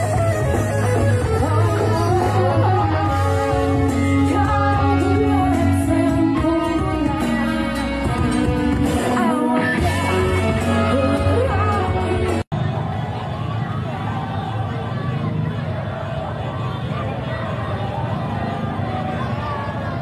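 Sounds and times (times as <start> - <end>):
electric guitars: 0.0 - 12.4
heavy bass: 0.0 - 12.5
woman singing: 1.2 - 12.4.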